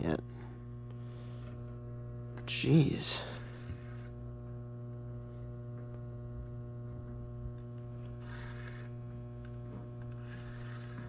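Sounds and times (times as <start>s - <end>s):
low buzzy hum: 0.0s - 11.0s.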